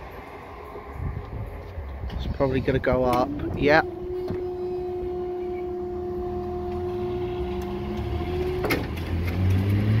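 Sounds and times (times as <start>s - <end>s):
vehicle engines rumbling: 0.0s - 10.0s
barrier motor hum: 0.2s - 9.9s
barrier clunk: 7.9s - 9.8s.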